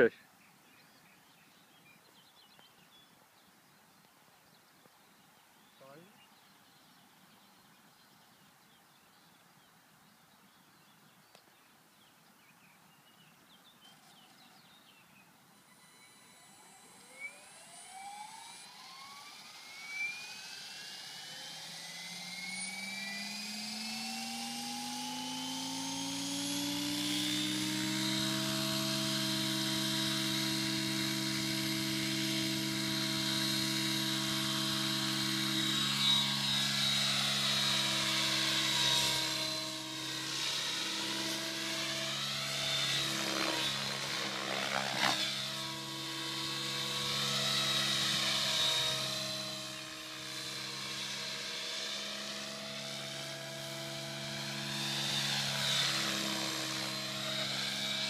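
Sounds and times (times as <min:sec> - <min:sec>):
model helicopter rotor whine: 0:13.9 - 0:58.0.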